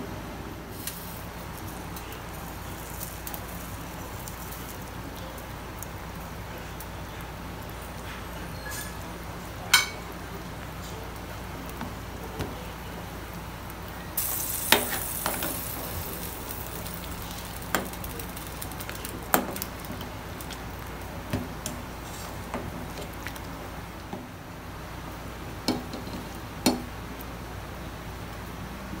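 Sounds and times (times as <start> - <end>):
boiling soup hissing: 0.6 - 28.4
metal ladle clinking on pot: 9.7 - 10.0.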